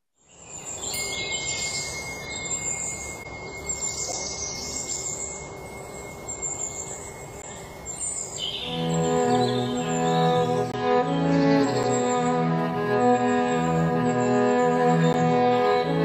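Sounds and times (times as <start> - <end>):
insect hiss: 0.0 - 9.2
birds chirping: 0.2 - 16.0
thin high tone: 0.9 - 10.6.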